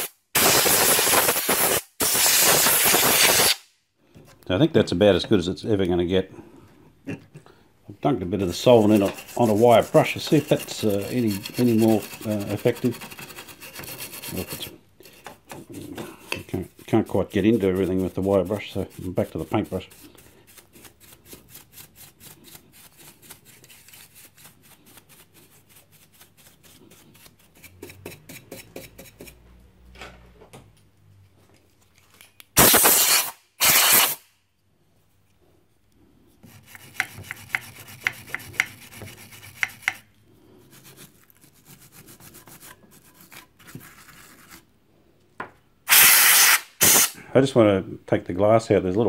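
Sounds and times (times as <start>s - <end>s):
compressed air blasts: 0.0s - 3.6s, 32.6s - 34.3s, 45.9s - 47.2s
paintbrush scrubbing metal: 8.4s - 29.4s, 36.4s - 44.7s.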